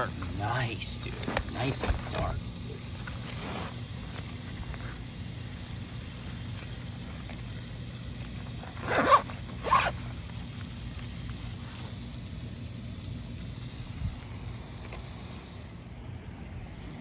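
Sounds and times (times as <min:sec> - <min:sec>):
zip rasps: 0:03.0 - 0:05.0, 0:08.6 - 0:10.2.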